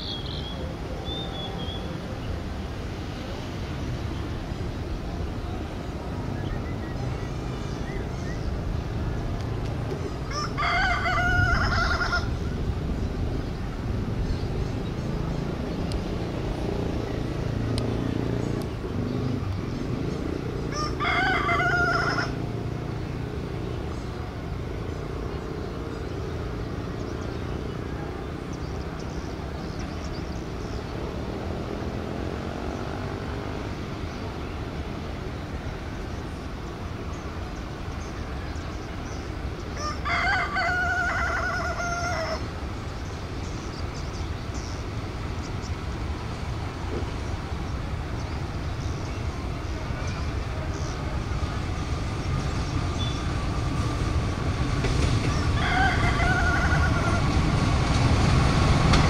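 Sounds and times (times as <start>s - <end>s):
train rumble: 0.0s - 32.8s, 33.7s - 59.0s
rooster crowing: 10.3s - 12.3s, 20.7s - 22.5s, 39.8s - 42.4s, 55.3s - 57.4s.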